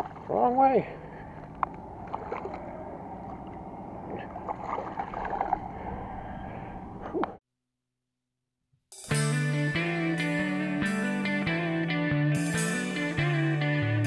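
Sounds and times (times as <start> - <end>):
pond water lapping: 0.0 - 7.3
small splashes and ticks: 1.2 - 5.7.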